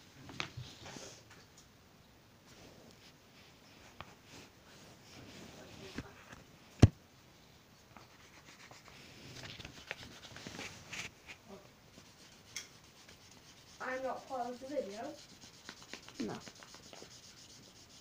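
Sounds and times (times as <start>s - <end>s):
paper rustling on microphone: 8.0s - 11.6s.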